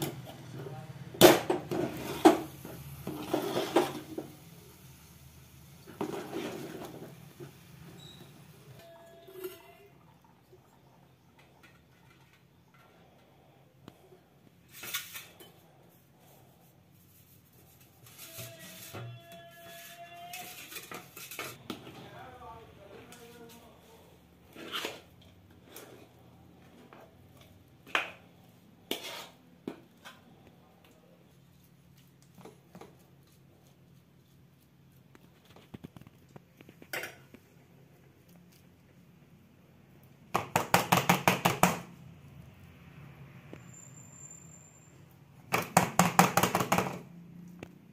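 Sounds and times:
steel spoon scraping a steel plate: 0:17.8 - 0:21.6, 0:28.9 - 0:29.4.

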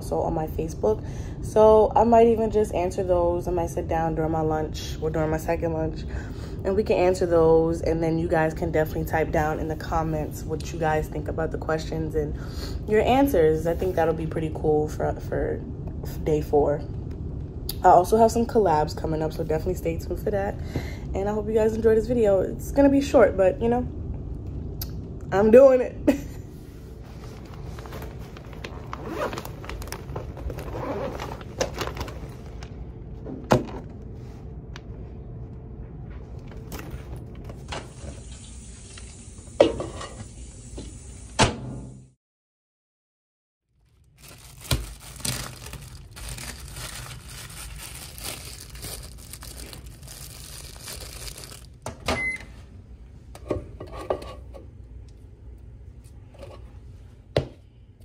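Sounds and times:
microwave humming: 0:44.1 - 0:53.8
microwave beep: 0:52.0 - 0:52.6.

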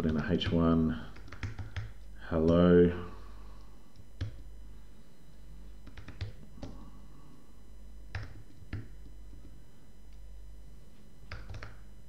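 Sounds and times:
low steady hum: 0:00.0 - 0:12.0
computer keyboard keystrokes: 0:01.1 - 0:02.6, 0:04.2 - 0:04.4, 0:05.8 - 0:06.8, 0:08.1 - 0:09.5, 0:11.3 - 0:11.8.

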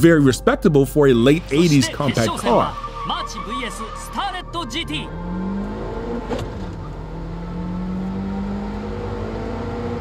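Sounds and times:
car engine accelerating: 0:01.2 - 0:10.0.

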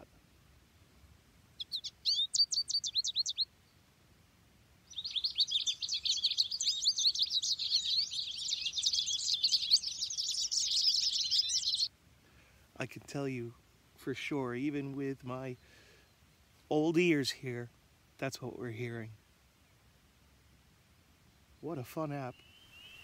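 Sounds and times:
quick high bird chirps: 0:01.6 - 0:03.5, 0:04.9 - 0:11.9
bird twittering song: 0:01.6 - 0:03.8, 0:04.8 - 0:11.9, 0:21.5 - 0:23.0.

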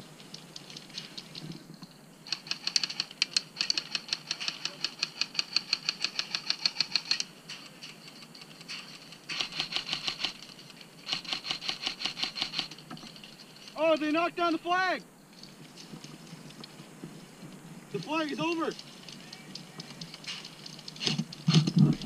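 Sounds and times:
airsoft rifles firing bursts: 0:02.3 - 0:07.2, 0:09.3 - 0:10.4, 0:11.0 - 0:12.8.

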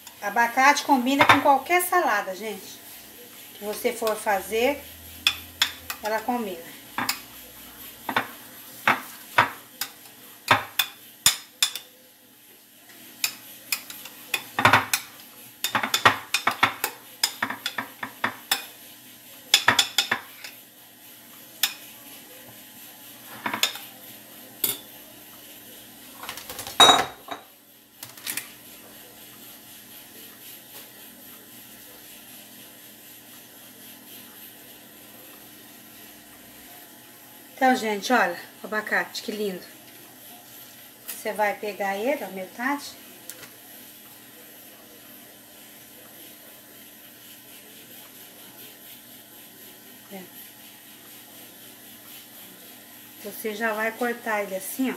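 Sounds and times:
spoon scraping potato salad: 0:03.5 - 0:08.4
spoon clinking on glass: 0:24.6 - 0:24.9, 0:26.8 - 0:27.4.

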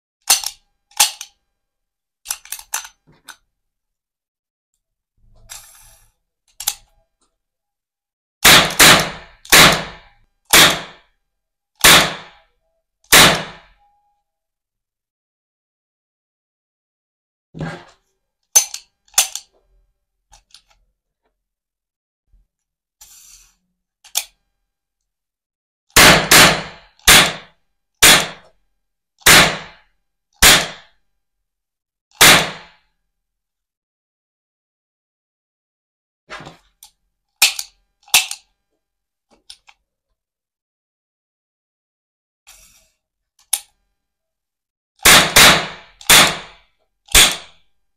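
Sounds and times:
toy cap gun bangs: 0:00.2 - 0:01.3, 0:08.4 - 0:11.0, 0:11.8 - 0:12.4, 0:13.1 - 0:13.8, 0:26.0 - 0:28.5, 0:29.2 - 0:29.8, 0:30.4 - 0:30.9, 0:32.2 - 0:32.8, 0:37.4 - 0:38.4, 0:45.0 - 0:47.6.

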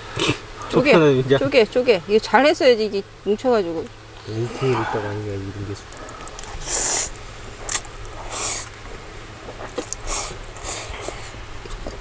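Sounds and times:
people slurping noodles: 0:00.1 - 0:00.7, 0:04.2 - 0:05.2, 0:06.0 - 0:08.8, 0:09.5 - 0:12.0.

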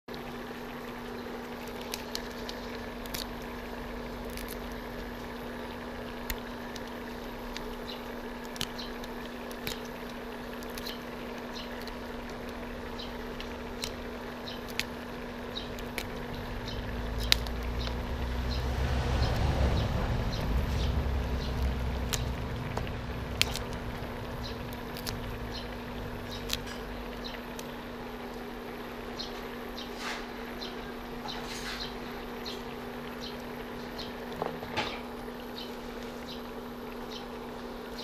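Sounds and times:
electrical hum: 0:00.1 - 0:38.0
water boiling in a wok: 0:00.1 - 0:38.0
small pops and ticks: 0:01.5 - 0:18.4, 0:21.4 - 0:28.4
low rumble: 0:15.7 - 0:27.9.

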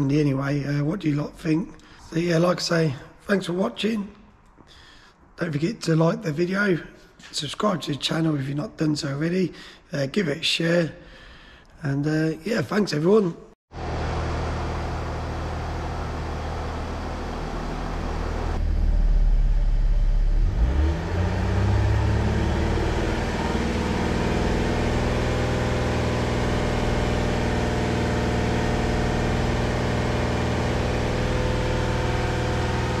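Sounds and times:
diesel engine running: 0:13.7 - 0:33.0.

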